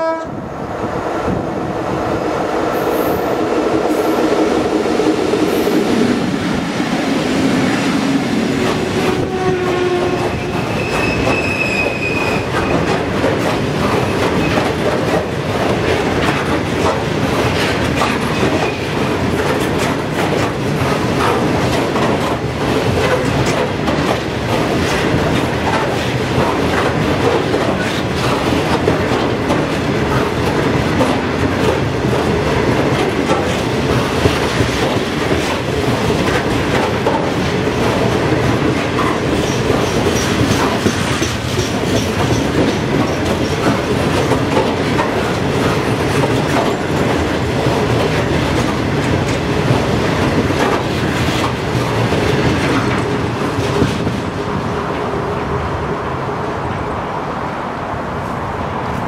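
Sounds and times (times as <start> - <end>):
train wheels clicking on rails: 1.2 - 55.6
high wheel squeal: 9.2 - 12.5.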